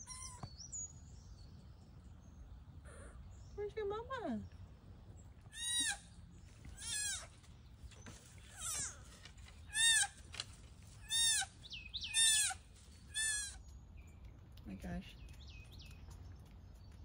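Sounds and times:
deer fawn bleating: 5.5s - 6.0s, 6.7s - 7.3s, 8.5s - 9.1s, 9.7s - 10.2s, 11.1s - 11.5s, 12.1s - 13.6s.

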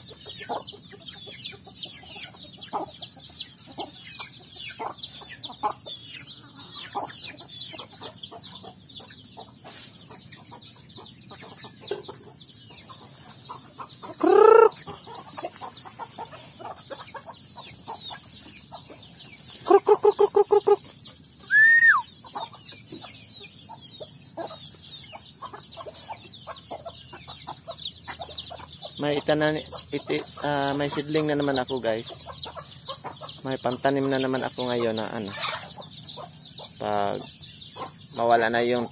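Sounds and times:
chicken clucking: 0.0s - 38.9s
chicks peeping: 0.0s - 38.9s
chicken squawk: 14.0s - 17.0s, 19.6s - 22.5s, 35.3s - 35.8s
loud chicken call: 14.2s - 15.0s, 19.6s - 22.1s.

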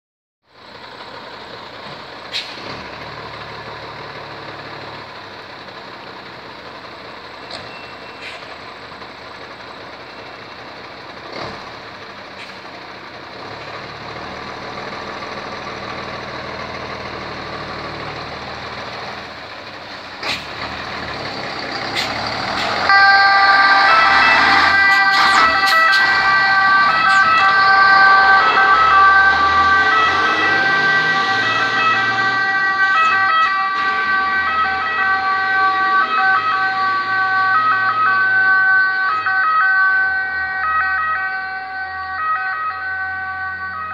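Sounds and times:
diesel engine running: 0.5s - 43.9s
two-tone siren: 22.6s - 43.9s.

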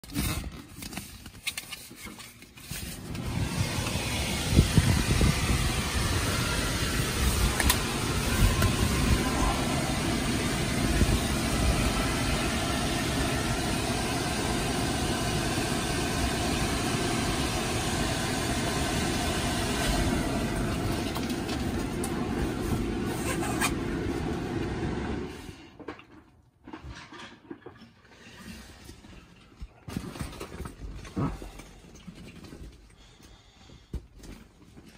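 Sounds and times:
electric blower rushing: 3.0s - 25.6s.

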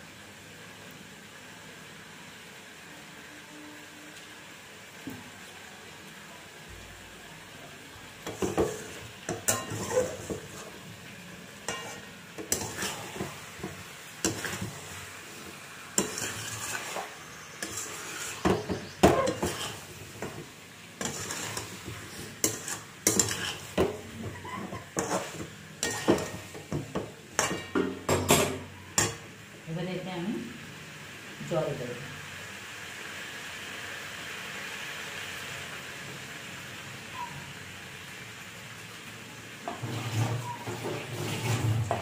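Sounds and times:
frying sizzle: 0.0s - 42.0s
spatula scraping a metal pan: 8.2s - 10.8s, 11.6s - 15.0s, 16.0s - 29.2s, 39.7s - 42.0s.

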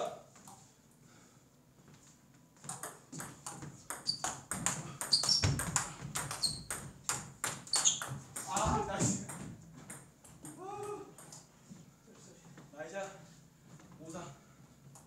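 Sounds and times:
table tennis ball tapping: 2.6s - 10.6s.

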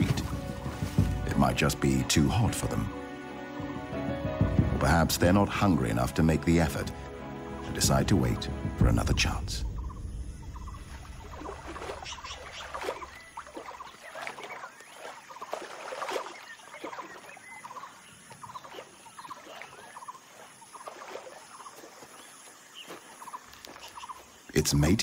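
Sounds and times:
hooves splashing through shallow water: 0.0s - 25.0s
low hum: 7.8s - 13.4s.

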